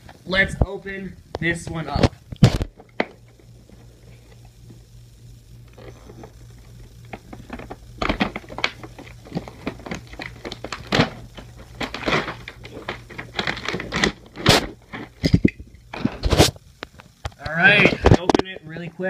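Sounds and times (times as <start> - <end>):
packaging crinkling and tearing: 7.1 - 15.4.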